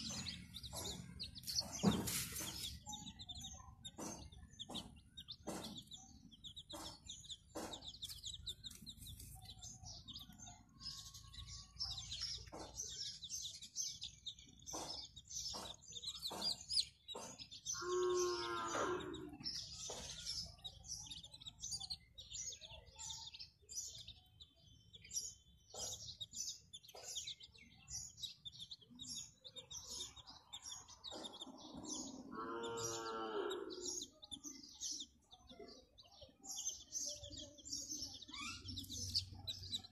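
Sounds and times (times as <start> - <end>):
chicks peeping: 0.0 - 39.9
farm animal calling: 17.7 - 19.4, 31.8 - 34.2.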